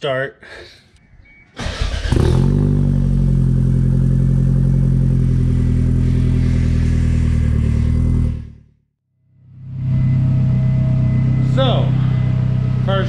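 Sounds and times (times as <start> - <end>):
car engine idling: 2.8 - 8.5, 9.5 - 13.0.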